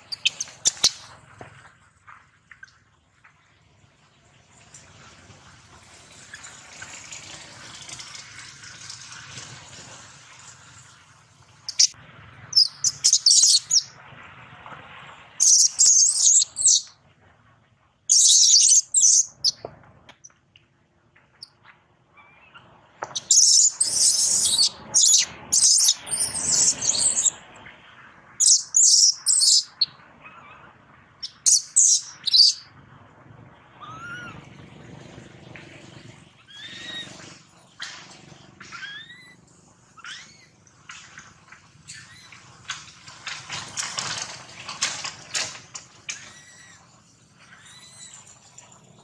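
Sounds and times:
infant monkey screaming: 22.2 - 27.4, 28.4 - 32.6, 33.8 - 34.4, 36.4 - 37.2, 38.7 - 39.4, 40.0 - 40.5, 47.5 - 48.2
soft rising monkey calls: 28.4 - 32.6, 33.7 - 34.5, 36.3 - 37.5, 38.6 - 40.7.

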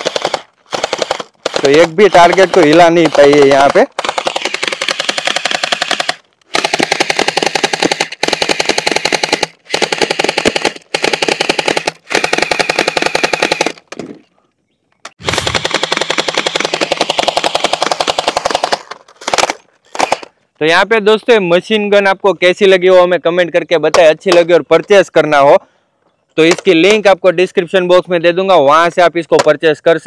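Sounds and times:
toy gun rapid firing: 0.0 - 13.9, 15.2 - 20.3.

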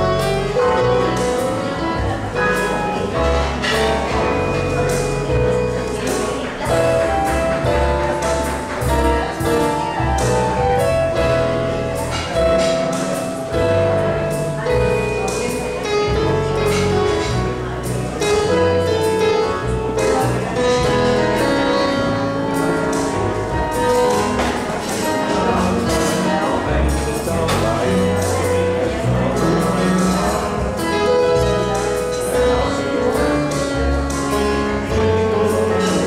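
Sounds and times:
steady electronic beat: 0.0 - 18.7
electronic keyboard melody: 0.0 - 36.0.

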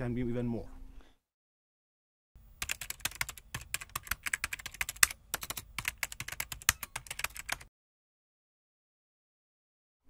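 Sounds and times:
keyboard typing clicks: 2.6 - 7.7.

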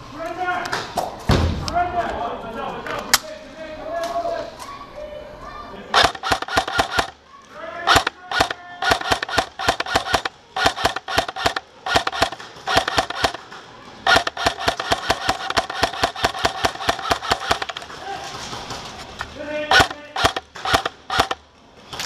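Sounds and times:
airsoft rifle full-auto bursts: 5.9 - 7.2, 7.8 - 17.9, 19.6 - 21.5
gearbox motor whining: 7.9 - 13.4, 14.1 - 17.9.

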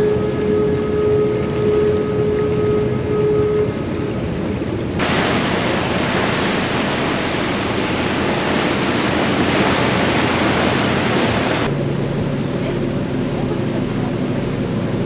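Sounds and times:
ship engine hum: 0.0 - 15.0
propeller wash rushing and churning: 3.8 - 15.0.

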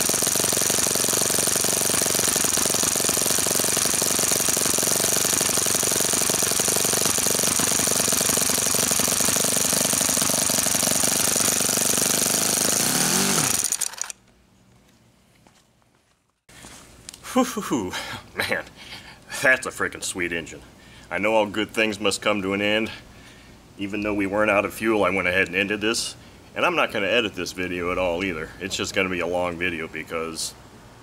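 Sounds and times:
model engine idling: 0.0 - 14.1.

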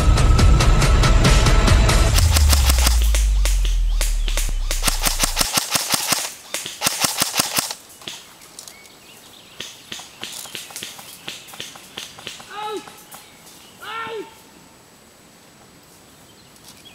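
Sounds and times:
bass-heavy music: 0.0 - 5.4
airsoft rifle firing: 2.1 - 8.2.

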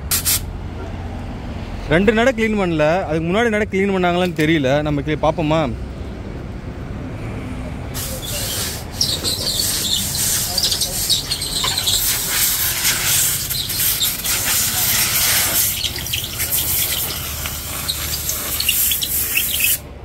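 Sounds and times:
compressed air blow gun hissing: 8.0 - 19.8.

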